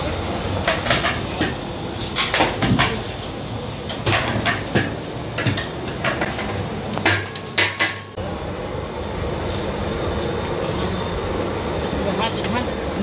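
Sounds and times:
metal pots clanking: 0:00.6 - 0:03.1, 0:03.8 - 0:08.2.

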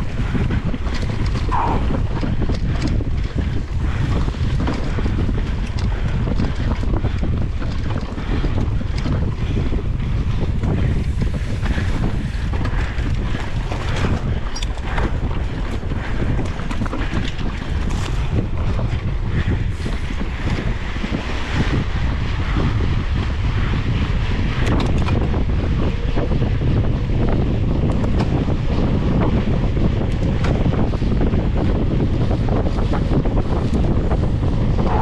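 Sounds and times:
tyres rumbling on dirt: 0:00.0 - 0:25.4
bike rattling: 0:00.0 - 0:35.0
wind rushing over microphone: 0:00.0 - 0:35.0.

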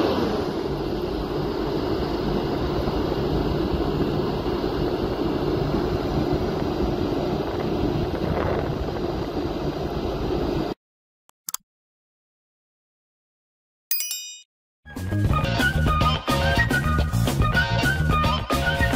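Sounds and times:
wind buffeting microphone: 0:02.6 - 0:10.7
short clicks: 0:11.3 - 0:11.6.

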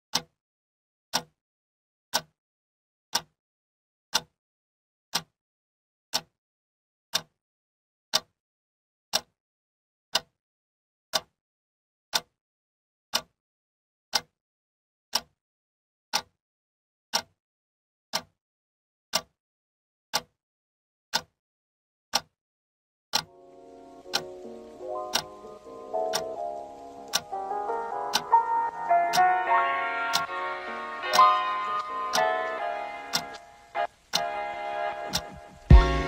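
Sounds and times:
wall clock ticking: 0:00.1 - 0:00.4, 0:01.1 - 0:01.4, 0:02.1 - 0:02.4, 0:03.1 - 0:03.3, 0:04.1 - 0:04.4, 0:05.1 - 0:05.3, 0:06.1 - 0:06.4, 0:07.1 - 0:07.4, 0:08.1 - 0:08.4, 0:09.1 - 0:09.4, 0:10.1 - 0:10.3, 0:11.1 - 0:11.4, 0:12.1 - 0:12.4, 0:13.1 - 0:13.4, 0:14.1 - 0:14.3, 0:15.1 - 0:15.4, 0:16.1 - 0:16.4, 0:17.1 - 0:17.4, 0:18.1 - 0:18.4, 0:19.1 - 0:19.4, 0:20.1 - 0:20.4, 0:21.1 - 0:21.4, 0:22.1 - 0:22.4, 0:23.1 - 0:36.0.

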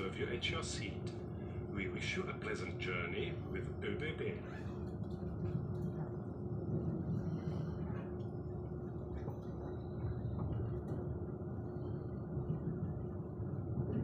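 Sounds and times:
faint steady hum: 0:00.0 - 0:14.0
train rumble from inside coach: 0:00.0 - 0:14.0.

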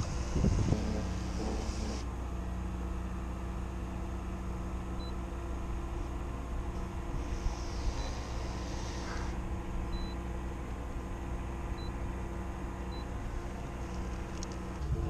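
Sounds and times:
engine low drone: 0:00.0 - 0:15.0
faint high beeps: 0:09.9 - 0:10.2.

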